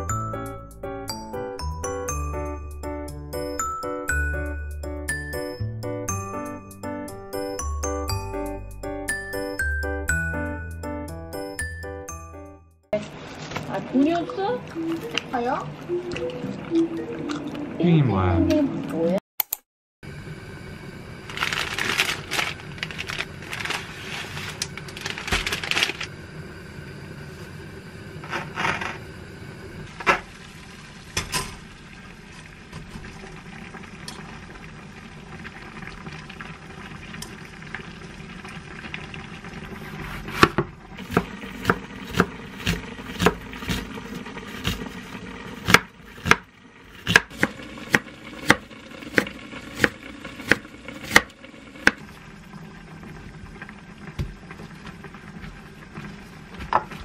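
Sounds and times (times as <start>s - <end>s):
plastic packet crinkling: 21.3s - 26.1s
knife chopping on wooden board: 40.2s - 43.8s, 45.6s - 48.6s, 49.2s - 52.0s.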